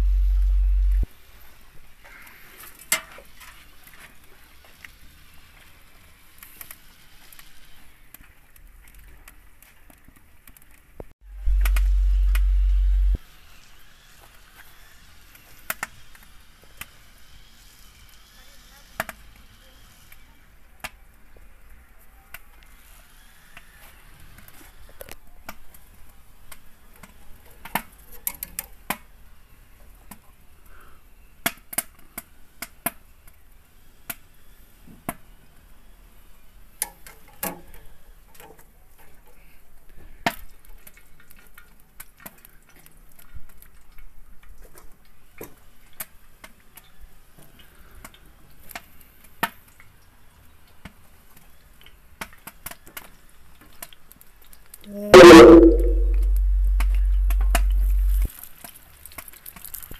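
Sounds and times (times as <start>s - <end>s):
hot oil sizzling and popping: 58.2s - 59.9s.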